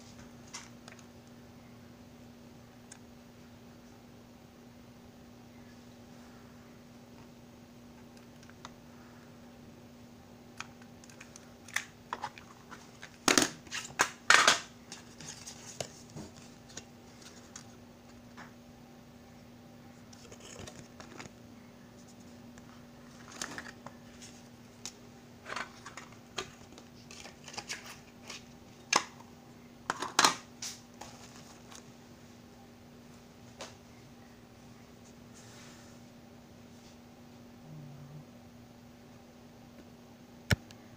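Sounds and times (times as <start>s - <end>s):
faint steady hum: 0.0s - 40.9s
plastic cassettes clicking and clacking: 10.6s - 15.9s, 23.0s - 23.9s, 24.8s - 29.3s.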